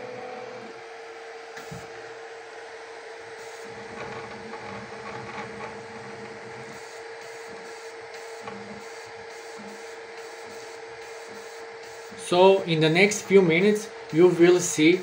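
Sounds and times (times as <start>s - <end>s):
printer motors whirring: 0.0s - 15.0s
steady hum and fan hiss: 0.0s - 15.0s.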